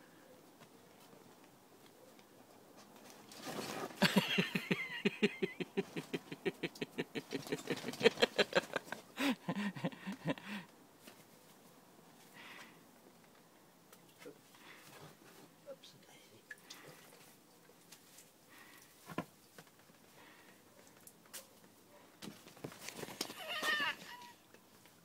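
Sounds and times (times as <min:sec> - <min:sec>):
scraping rustle: 0:02.7 - 0:04.0.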